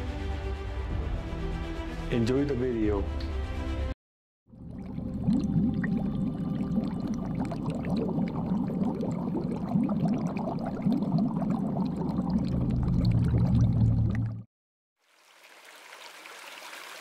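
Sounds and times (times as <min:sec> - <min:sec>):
underwater bubbling: 0:04.5 - 0:14.5.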